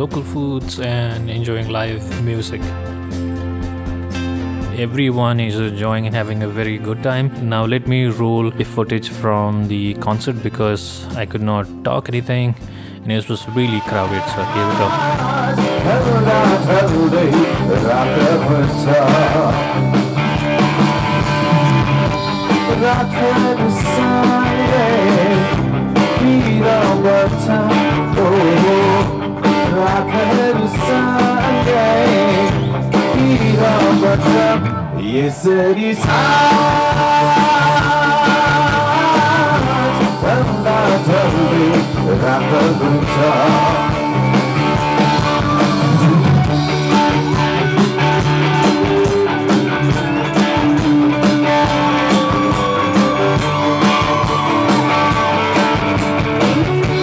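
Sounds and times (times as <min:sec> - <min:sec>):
electric guitar: 0:00.0 - 0:07.6, 0:12.6 - 0:57.0
drum kit: 0:00.0 - 0:35.0, 0:35.9 - 0:57.0
bass guitar: 0:00.0 - 0:57.0
person singing: 0:12.4 - 0:19.9, 0:21.4 - 0:57.0.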